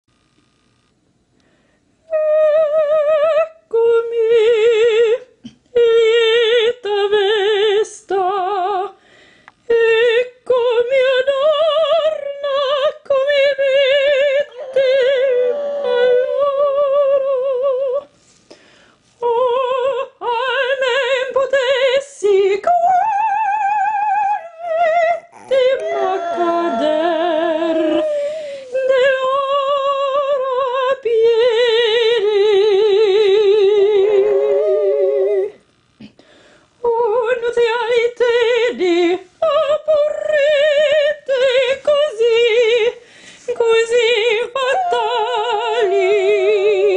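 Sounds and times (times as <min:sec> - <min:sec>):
woman singing operatic phrases: 0:09.7 - 0:18.1, 0:19.2 - 0:35.6, 0:36.8 - 0:46.9
dog howling: 0:13.8 - 0:17.6, 0:23.6 - 0:29.6, 0:34.0 - 0:35.6, 0:44.6 - 0:46.9.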